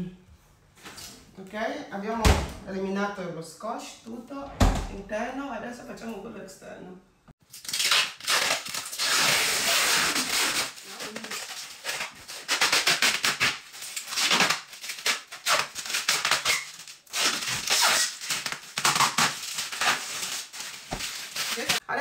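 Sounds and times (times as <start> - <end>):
plastic film crinkling: 7.4 - 21.8
plastic film tearing: 7.4 - 21.8.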